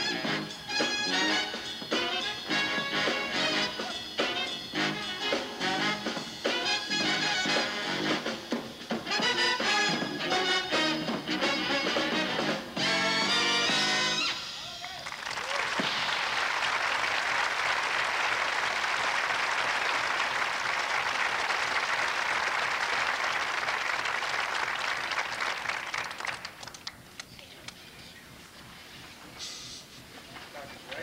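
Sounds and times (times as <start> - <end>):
audience applauding: 14.6 - 27.3.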